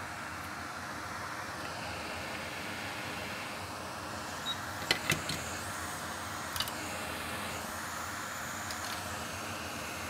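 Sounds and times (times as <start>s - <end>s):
fan blowing air hiss: 0.0s - 10.0s.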